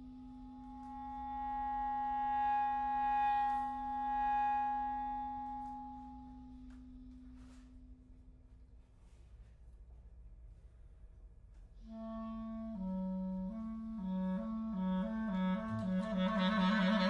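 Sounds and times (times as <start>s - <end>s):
clarinet low held note: 0.0s - 7.7s, 11.8s - 17.0s
clarinet high held note: 11.9s - 17.0s.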